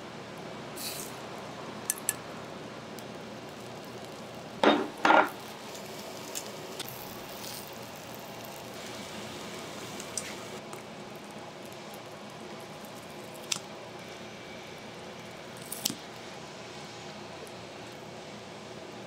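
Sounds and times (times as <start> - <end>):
steady hiss: 0.0 - 19.0
dishes and utensils clinking: 4.6 - 5.4.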